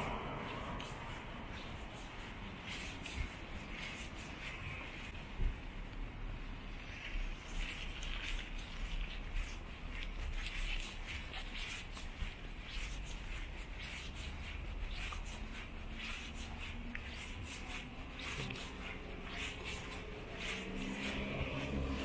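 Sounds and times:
footsteps scuffing on gritty pavement: 0:00.0 - 0:05.2, 0:06.8 - 0:22.0
steady low rumble: 0:00.0 - 0:22.0
passing car engine hum: 0:19.5 - 0:22.0.

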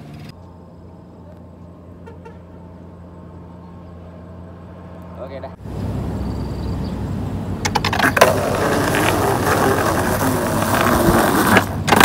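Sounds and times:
skateboard wheels rolling on concrete: 0:05.6 - 0:12.0
skateboard clacks: 0:07.6 - 0:12.0.

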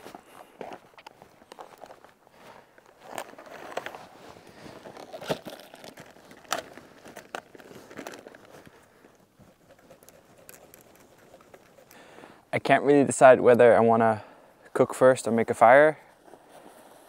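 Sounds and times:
plastic wrapping crinkling: 0:02.8 - 0:09.1
knife cutting plastic: 0:04.8 - 0:08.5.

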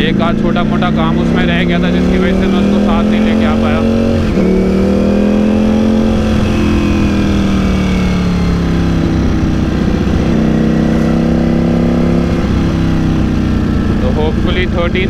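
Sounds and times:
motorcycle engine running: 0:00.0 - 0:15.0
wind noise: 0:02.4 - 0:14.0.

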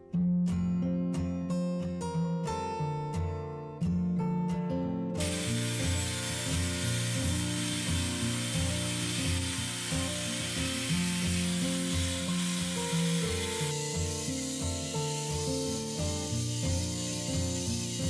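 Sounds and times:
table saw cutting wood: 0:05.2 - 0:18.0.

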